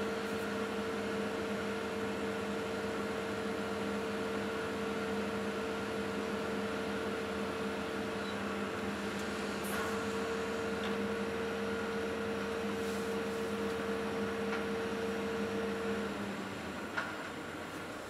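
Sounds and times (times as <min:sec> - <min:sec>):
excavator engine and hydraulics droning: 0:00.0 - 0:18.0.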